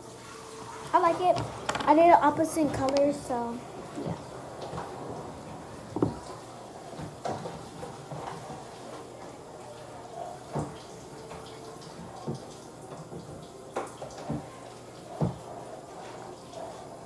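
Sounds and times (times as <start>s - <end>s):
small items tapping and knocking: 1.4s - 2.0s.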